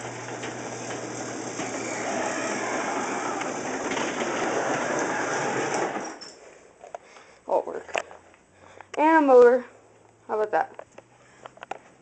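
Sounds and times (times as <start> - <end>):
electric opener hum: 0.0 - 6.2
garage door rolling up: 0.0 - 6.5.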